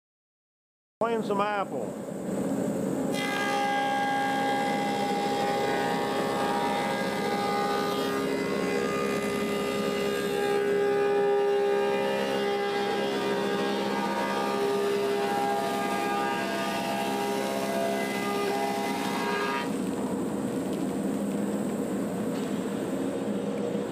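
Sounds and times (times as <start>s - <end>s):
planer motor whine: 3.1s - 19.8s.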